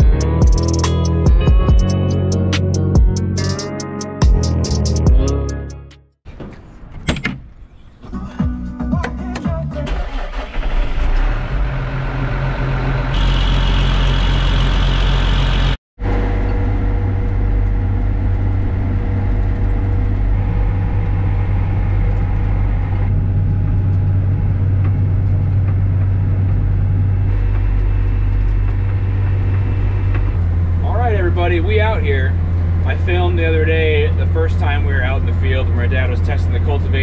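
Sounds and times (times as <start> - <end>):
tractor diesel engine running: 9.2 - 37.0.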